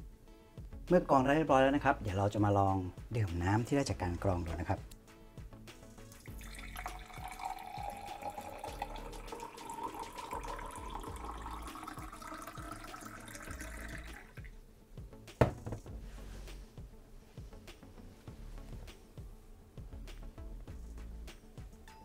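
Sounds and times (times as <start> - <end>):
water pouring into glass: 6.0 - 14.5.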